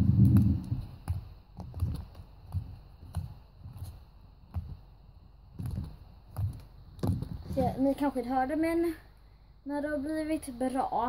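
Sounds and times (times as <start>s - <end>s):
soft low thumps: 0.0s - 8.9s.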